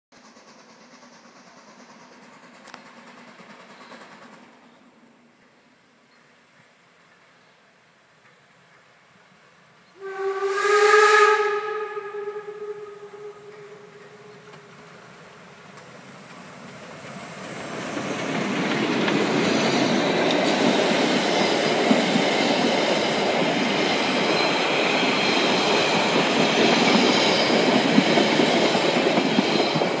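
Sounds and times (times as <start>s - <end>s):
train coaches rumbling past: 0.1s - 30.0s
rail-joint clicks: 0.2s - 4.6s, 5.4s - 9.1s, 13.5s - 20.8s
high wheel squeal: 19.1s - 21.5s.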